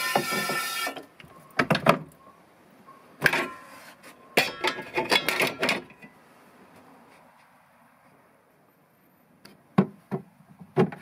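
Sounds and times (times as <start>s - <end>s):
enamel plates clinking: 4.4s - 6.1s.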